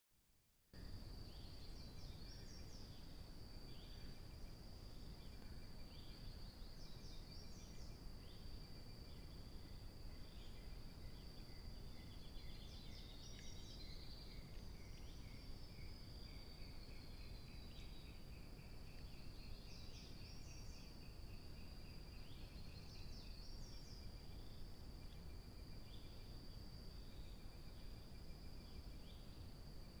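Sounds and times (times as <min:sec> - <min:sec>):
insect chirps: 0:00.8 - 0:30.0
insects trilling: 0:00.8 - 0:30.0
microphone hiss: 0:00.8 - 0:30.0.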